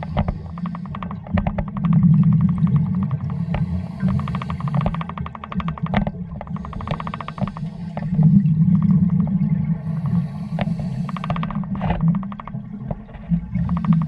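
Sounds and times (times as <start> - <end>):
crackling exhaust bubbles: 0.0 - 14.0.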